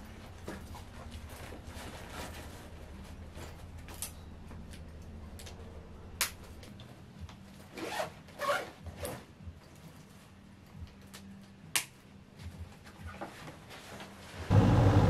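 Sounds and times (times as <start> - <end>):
steady low hum: 0.0 - 7.6, 14.5 - 15.0.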